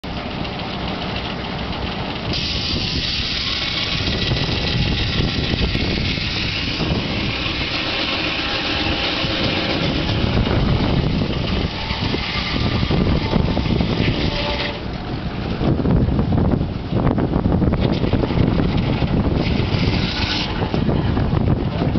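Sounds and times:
high rushing noise: 0.0s - 21.6s
steam engine running: 0.0s - 21.9s.

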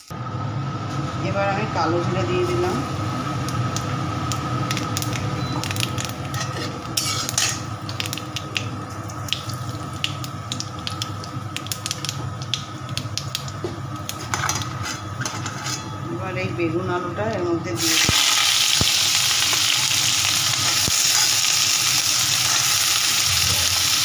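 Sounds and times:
seeds sizzling and popping in oil: 3.3s - 15.0s, 17.8s - 24.0s
metal spatula scraping pan: 6.3s - 7.6s, 14.3s - 16.0s.

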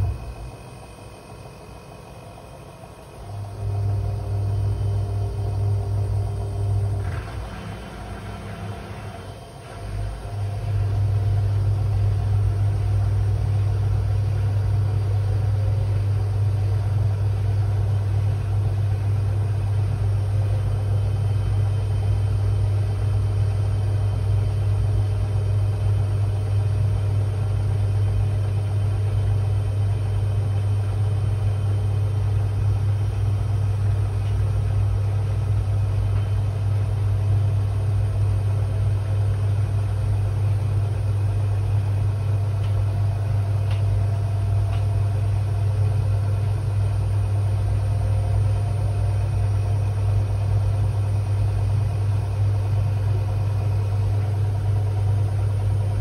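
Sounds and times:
washing machine humming: 0.0s - 56.0s.

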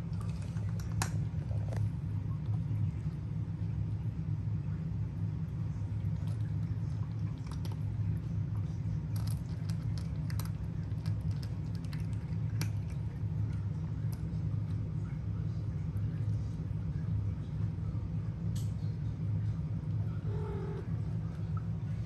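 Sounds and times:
steady low hum: 0.0s - 22.0s
cat crunching dry kibble: 6.0s - 14.9s.

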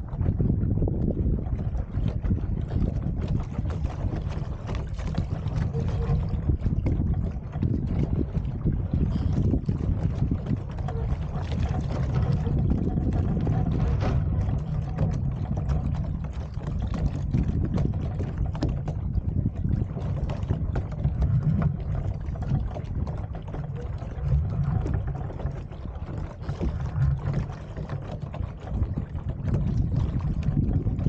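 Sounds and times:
water slapping against hull: 0.0s - 31.0s
wind rumbling on microphone: 0.0s - 31.0s.

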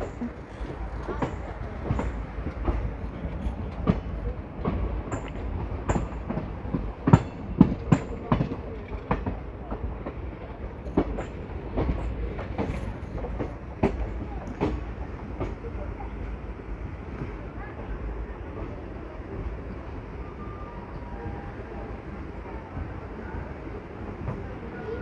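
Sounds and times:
train wheels clattering over rail joints: 0.0s - 15.9s.

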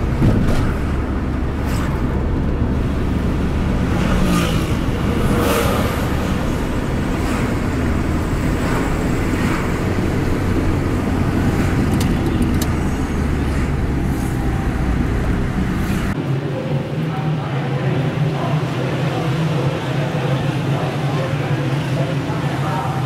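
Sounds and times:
cars passing: 0.0s - 16.3s
car engine and road rumble: 0.0s - 17.0s.

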